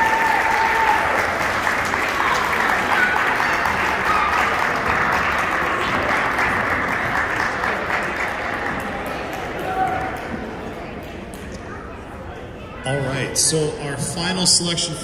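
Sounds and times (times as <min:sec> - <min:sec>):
audience clapping: 0:00.0 - 0:11.4.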